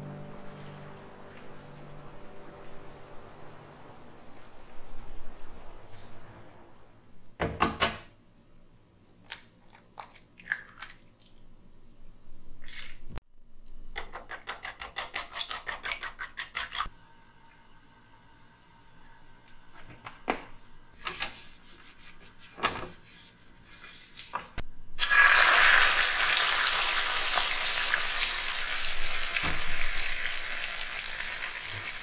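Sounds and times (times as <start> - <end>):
high insect drone: 0.0 - 7.0
outdoor hiss: 0.0 - 7.3, 25.0 - 32.0.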